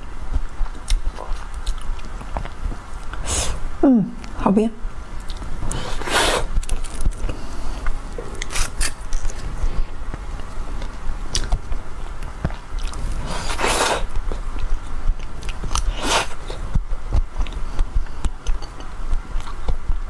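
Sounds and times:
soft chewing: 0:00.6 - 0:03.2, 0:06.6 - 0:19.8.

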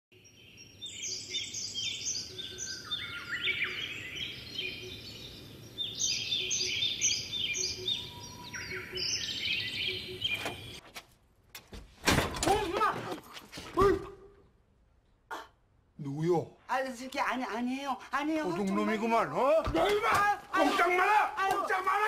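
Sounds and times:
birds chirping: 0:00.1 - 0:10.8.

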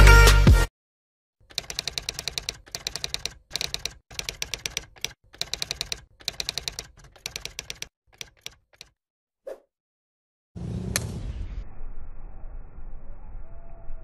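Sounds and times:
keyboard typing clicks: 0:01.5 - 0:09.0.

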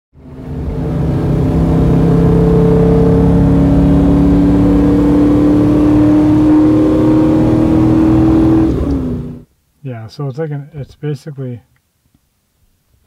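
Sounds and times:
car engine under load: 0:00.2 - 0:09.5.

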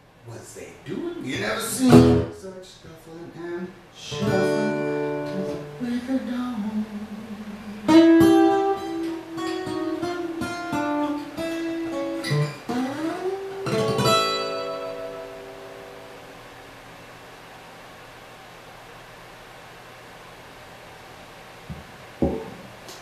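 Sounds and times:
acoustic guitar playing: 0:01.0 - 0:02.6, 0:03.2 - 0:16.6.

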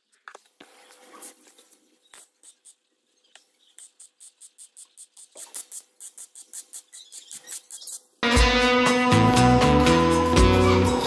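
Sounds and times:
welding arc crackling: 0:03.8 - 0:08.0.

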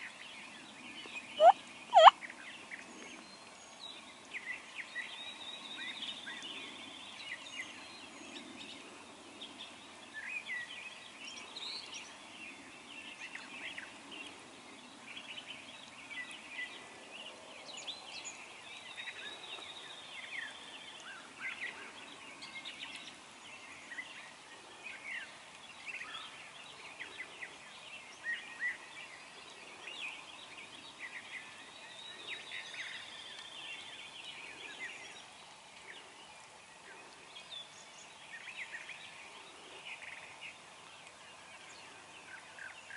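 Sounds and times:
songbirds chirping and trilling: 0:00.0 - 0:42.9
turkey gobbling: 0:01.4 - 0:02.1.

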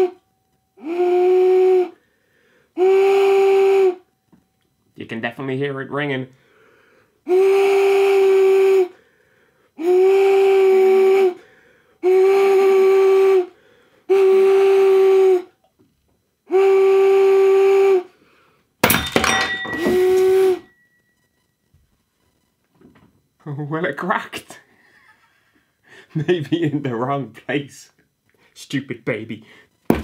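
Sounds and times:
loud whistle blasts: 0:00.8 - 0:02.0, 0:02.8 - 0:04.1, 0:07.3 - 0:09.0, 0:09.8 - 0:15.6, 0:16.5 - 0:18.2, 0:18.9 - 0:21.0
wine glass breaking: 0:18.8 - 0:20.7.

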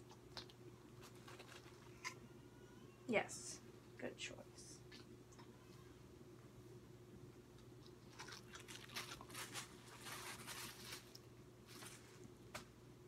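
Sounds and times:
dog chewing a treat: 0:07.6 - 0:09.3.

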